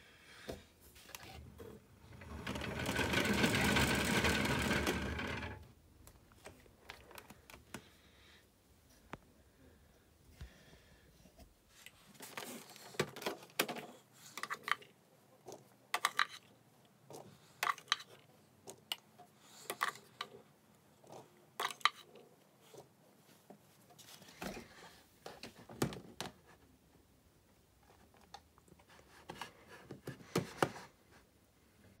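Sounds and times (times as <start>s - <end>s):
plastic toy clicking and rattling: 1.3s - 5.6s, 15.5s - 16.5s, 17.6s - 19.0s, 21.1s - 22.2s.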